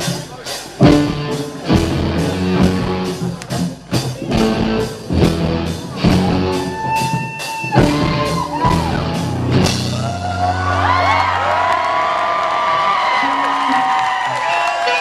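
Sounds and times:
live rock band playing: 0:00.0 - 0:11.8.

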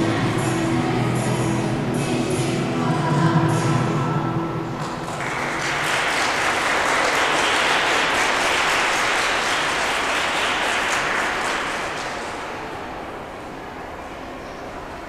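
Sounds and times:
audience applauding: 0:04.8 - 0:12.8.

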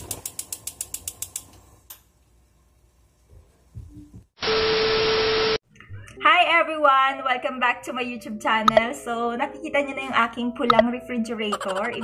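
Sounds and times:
rapid mechanical clicking: 0:00.0 - 0:01.6.

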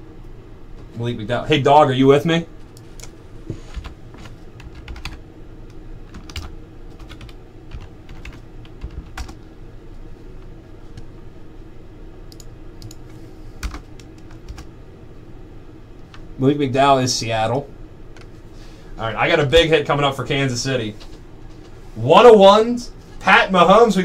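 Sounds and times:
typing on computer keyboard: 0:04.6 - 0:05.2, 0:06.1 - 0:09.4, 0:12.3 - 0:13.0, 0:13.6 - 0:14.7.

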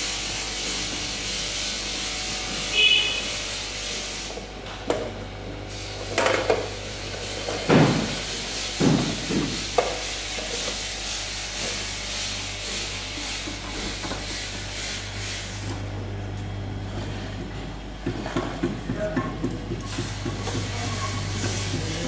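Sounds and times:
machine hiss and hum: 0:00.0 - 0:22.0.

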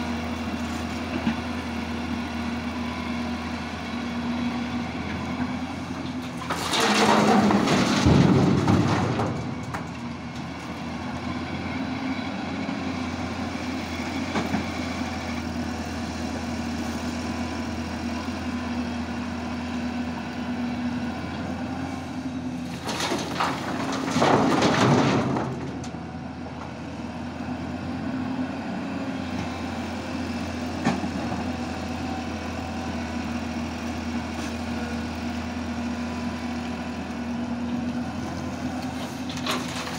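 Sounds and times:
diesel engine running: 0:00.0 - 0:39.9
rock and soil dumped into truck: 0:06.0 - 0:10.7, 0:22.7 - 0:26.0, 0:38.8 - 0:39.9.

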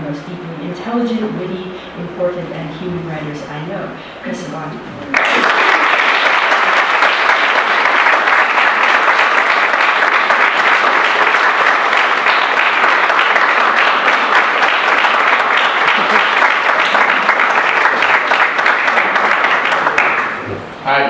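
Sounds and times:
audience applauding: 0:05.1 - 0:20.5.

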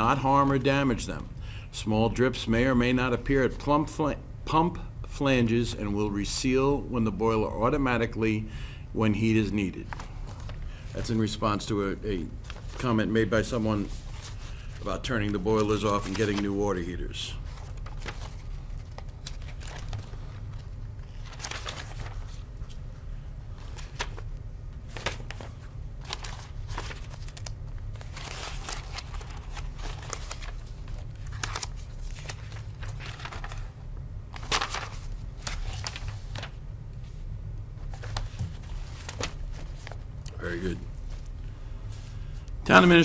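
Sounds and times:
low room hum: 0:00.0 - 0:43.0
paper rustling: 0:12.1 - 0:22.8, 0:23.6 - 0:37.2, 0:37.8 - 0:43.0.

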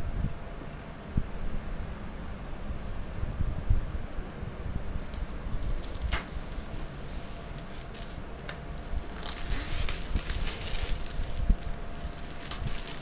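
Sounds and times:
plastic wrap crinkling: 0:05.0 - 0:13.0.

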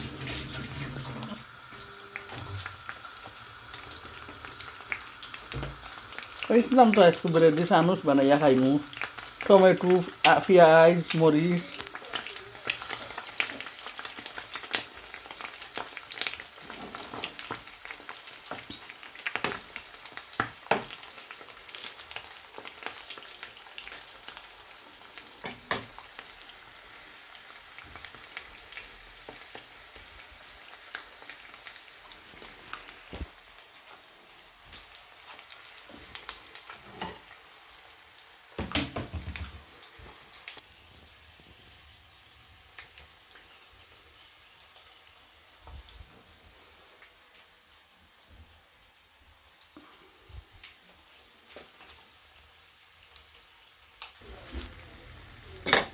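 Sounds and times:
eggs sizzling in oil: 0:00.0 - 0:55.9.

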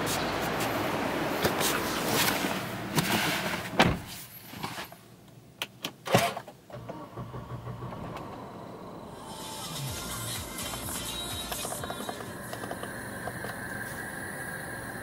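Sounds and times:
traffic noise: 0:00.0 - 0:15.0
car door thumping shut: 0:03.8 - 0:04.1
car electrics humming: 0:06.7 - 0:15.0.

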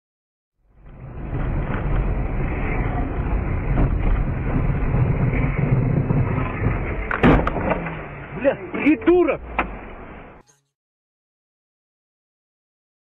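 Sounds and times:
car engine and tyres rumbling: 0:00.6 - 0:10.4.

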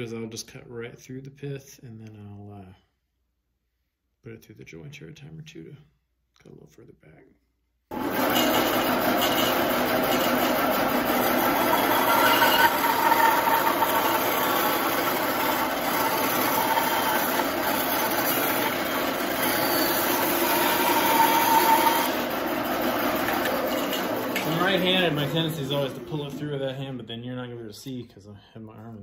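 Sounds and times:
bandsaw cutting wood: 0:07.9 - 0:26.8.

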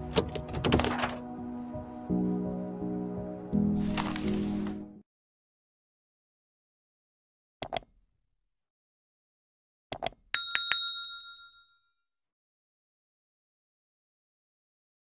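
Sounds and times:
double mouse click: 0:07.6 - 0:07.9, 0:09.9 - 0:10.2
notification bell ding: 0:10.4 - 0:11.9.

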